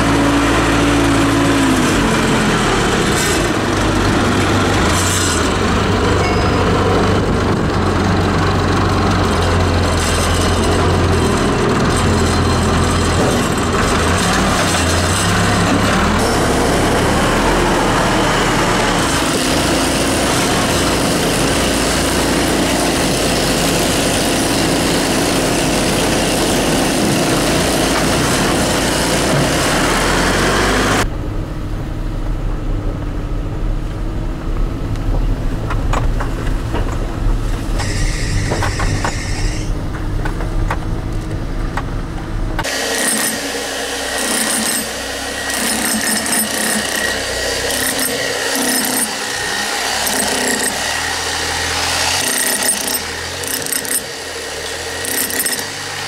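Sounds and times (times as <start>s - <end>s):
jackhammer on stone: 0.0s - 31.1s, 37.7s - 41.0s, 42.6s - 56.0s
loader engine running: 0.0s - 56.0s
car engine rumble inside cabin: 30.9s - 42.7s.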